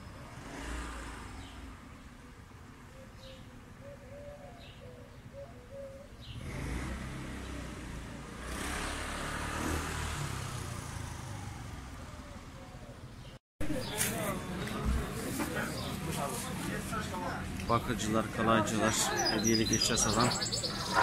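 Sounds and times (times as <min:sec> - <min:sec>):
faint bird calls: 0:02.9 - 0:06.4
vehicle passing: 0:06.2 - 0:12.8, 0:13.8 - 0:21.0.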